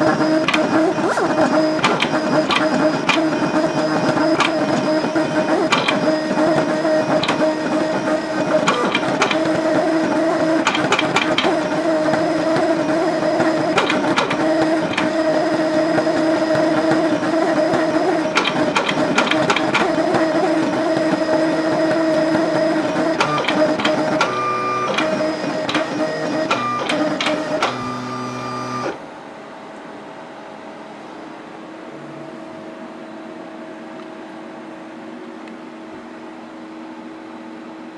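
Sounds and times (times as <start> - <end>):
plotter stepper motors whining: 0.0 - 29.0
sharp machine clicks: 0.4 - 9.6, 10.5 - 12.7, 13.4 - 15.4, 16.6 - 21.5.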